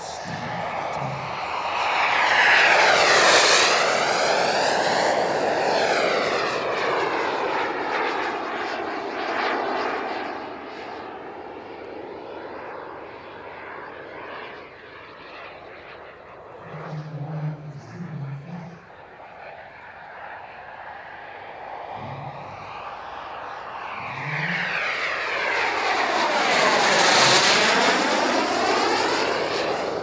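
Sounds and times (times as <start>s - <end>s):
high whine dropping in pitch: 0.0s - 4.8s, 16.6s - 19.0s, 21.9s - 29.6s
model jet turbine roar: 0.0s - 30.0s.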